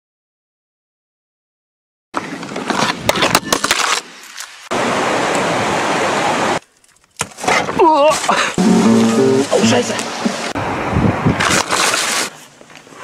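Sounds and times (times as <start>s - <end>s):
river water rushing over rapids: 4.7s - 6.6s, 8.6s - 10.9s.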